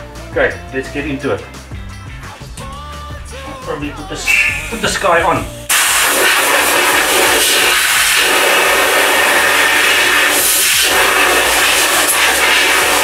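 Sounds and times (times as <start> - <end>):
compressed air blow gun hissing: 5.6 - 13.0.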